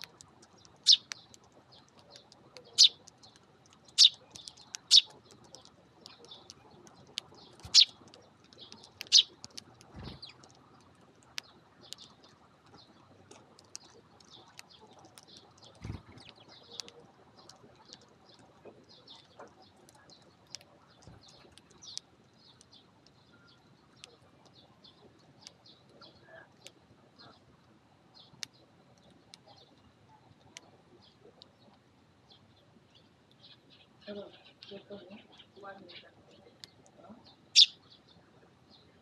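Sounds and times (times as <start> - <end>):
sparrows chirping: 0.0 - 27.5, 28.1 - 39.0
beaks pecking grains: 0.0 - 27.6.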